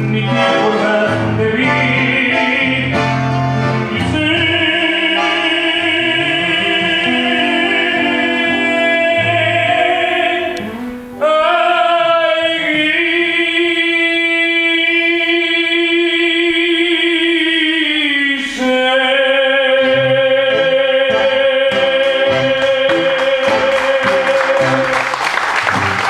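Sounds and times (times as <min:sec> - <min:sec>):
bandoneon: 0:00.0 - 0:11.9
man singing: 0:00.0 - 0:25.1
audience applause: 0:22.6 - 0:26.0.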